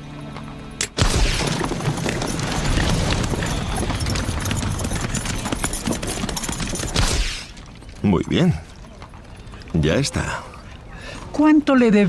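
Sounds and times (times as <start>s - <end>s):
galloping horses' hooves: 0.0s - 10.4s
sharp crack: 0.8s - 3.9s.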